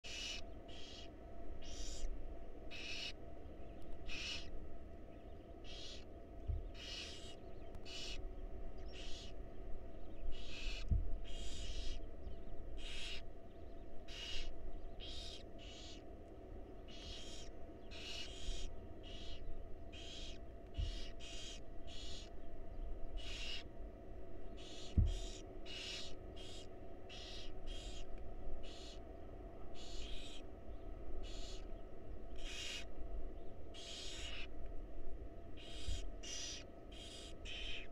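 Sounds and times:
owl nestlings hissing: 0.1 - 2.1, 2.7 - 3.2, 4.0 - 4.6, 5.6 - 8.3, 8.9 - 9.4, 10.3 - 12.1, 12.8 - 13.3, 14.1 - 16.0, 16.8 - 22.4, 23.2 - 23.7, 24.6 - 29.0, 29.8 - 30.4, 31.2 - 31.7, 32.3 - 32.9, 33.8 - 34.5, 35.6 - 37.9.

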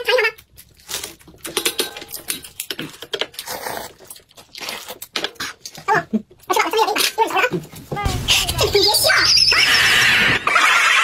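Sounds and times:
slurping and chewing noodles: 2.7 - 6.5.

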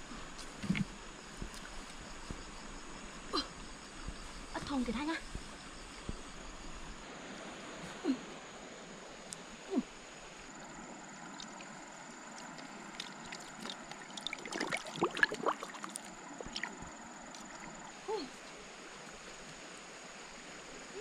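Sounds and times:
river water flowing: 0.0 - 21.0
small splashes and clicks: 11.2 - 17.8.

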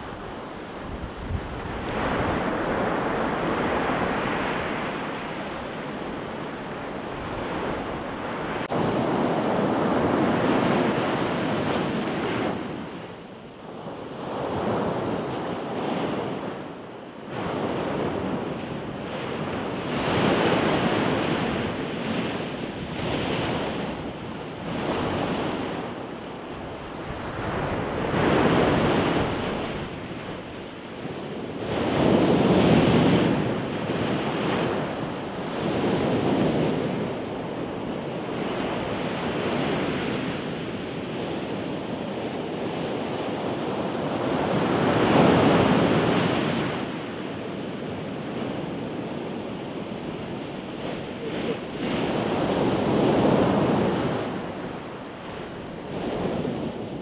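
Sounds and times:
surf breaking on shore: 0.0 - 13.0, 42.3 - 57.0.

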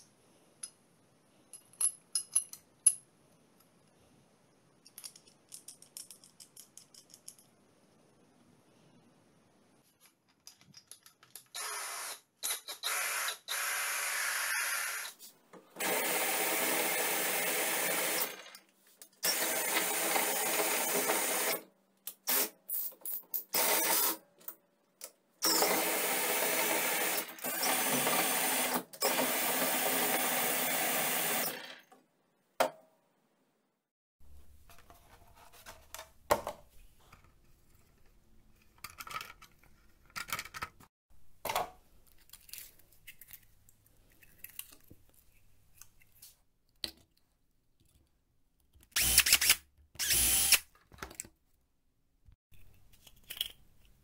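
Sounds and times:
metallic clicks and clinks: 1.5 - 3.1, 4.8 - 7.6
cordless drill running: 25.4 - 31.6, 49.0 - 50.6.

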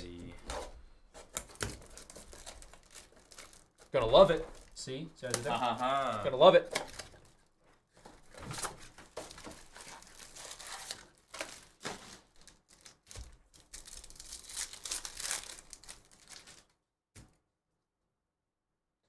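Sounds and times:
foil wrappers crinkling: 1.1 - 16.8
foil pack tearing open: 1.2 - 7.3, 8.2 - 16.7.

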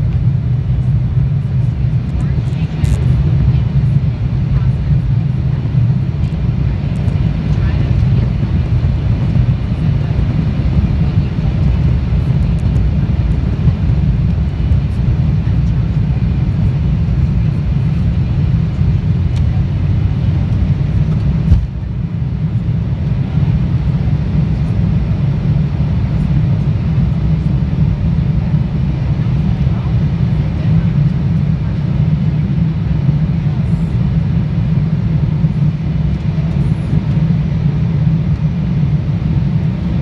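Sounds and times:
jet engines rumbling in cabin: 0.0 - 40.0.

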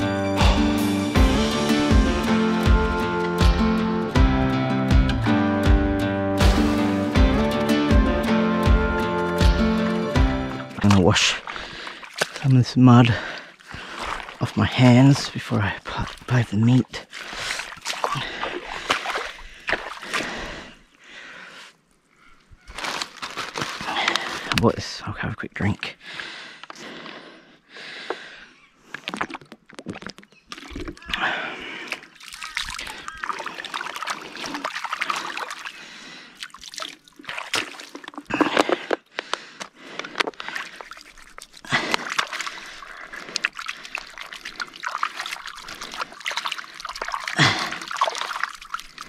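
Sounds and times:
hands splashing in puddle: 10.5 - 12.5, 13.6 - 14.8, 17.0 - 20.4, 22.7 - 24.6, 31.8 - 49.0.

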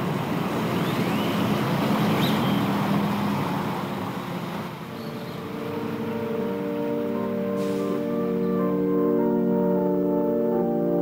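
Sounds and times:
rushing background noise: 0.0 - 11.0
organ chords: 4.9 - 11.0.

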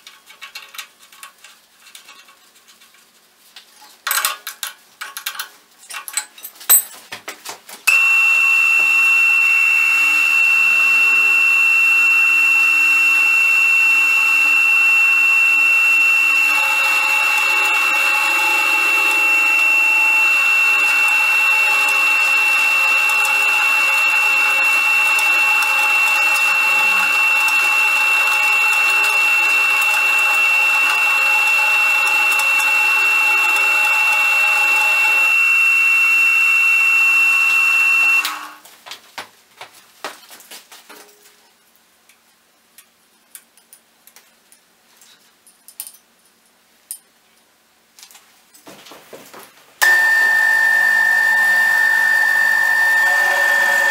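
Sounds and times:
wrench clinking on metal: 4.1 - 7.0
spindle motor whine: 7.9 - 38.6, 49.8 - 53.9
end mill grinding steel: 13.3 - 36.3, 49.8 - 53.9.

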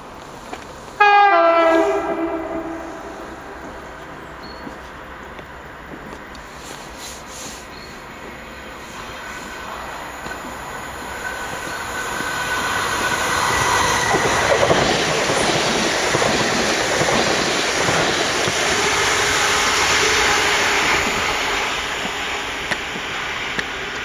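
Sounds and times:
train wheels on rails: 0.0 - 24.0.

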